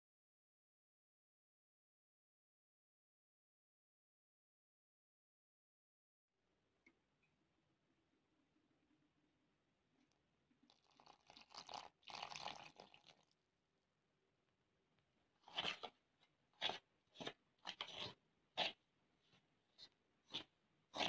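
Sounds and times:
oil pouring from plastic bottle: 10.7 - 13.4.

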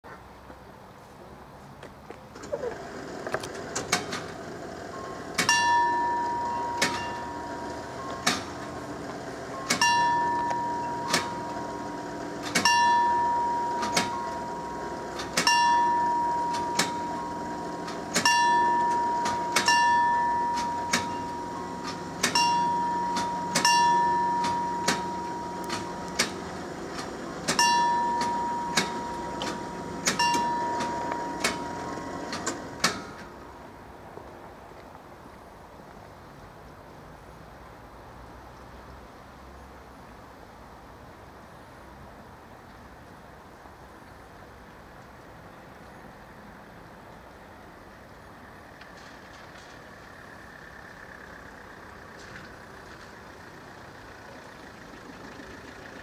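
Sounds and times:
level crossing warning bell: 2.8 - 33.6.

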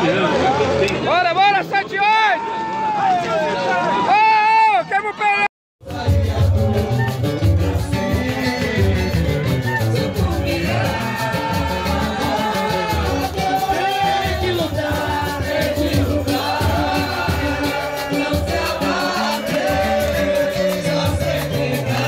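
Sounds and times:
drums and percussion: 5.8 - 22.0.

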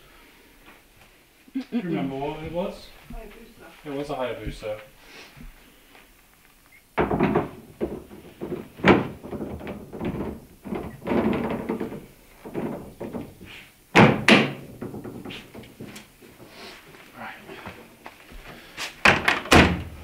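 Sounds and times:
loud thuds: 6.9 - 16.5.

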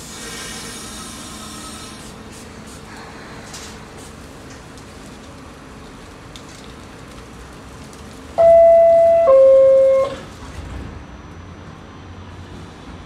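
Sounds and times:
two-tone descending door chime: 8.4 - 10.2.

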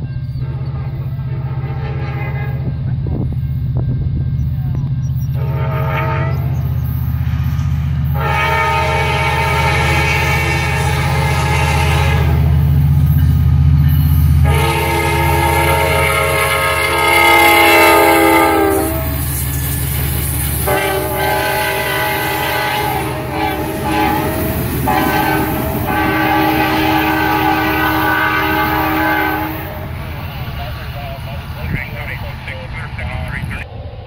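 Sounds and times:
locomotive engine rumble: 0.0 - 34.0
rolling train coaches: 0.0 - 34.0
train air horn blasts: 0.4 - 2.7, 5.3 - 6.8, 8.1 - 12.8, 14.4 - 19.3, 20.6 - 30.0.

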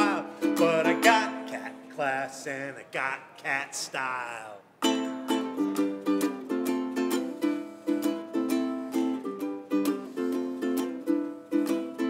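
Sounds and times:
ukulele strummed chords: 0.0 - 2.0, 4.8 - 12.0.

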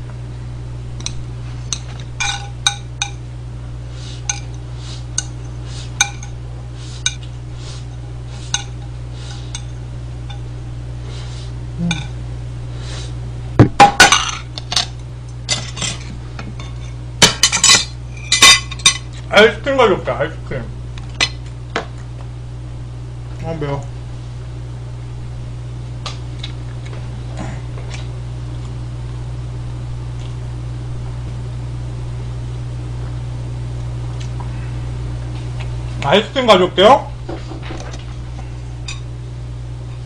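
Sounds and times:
chopsticks tapping on a plate: 6.0 - 6.4.

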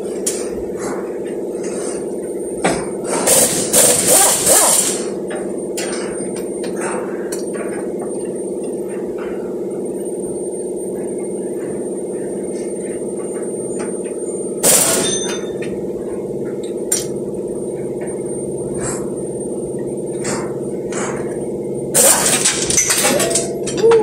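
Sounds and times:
steady mechanical hum: 0.0 - 24.0
metallic clank: 22.0 - 24.0.

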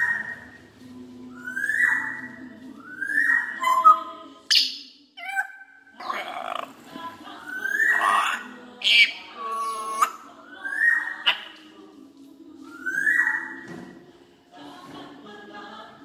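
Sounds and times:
parrot squawking: 3.1 - 6.8, 7.5 - 11.6.

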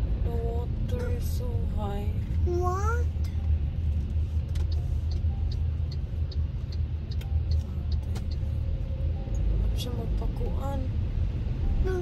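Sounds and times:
car cabin rumble: 0.0 - 12.0
light regular ticking: 3.2 - 8.6.

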